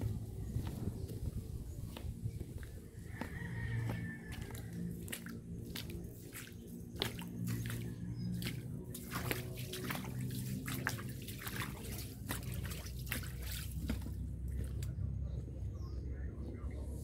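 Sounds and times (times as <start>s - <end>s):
water sloshing and dripping: 0.0s - 15.0s
low steady hum: 0.0s - 17.0s
sharp clicks and splashes: 3.2s - 15.0s.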